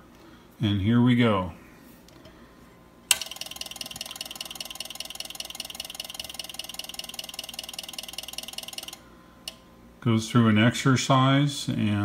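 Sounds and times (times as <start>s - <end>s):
rapid clicking buzz: 3.1s - 9.6s.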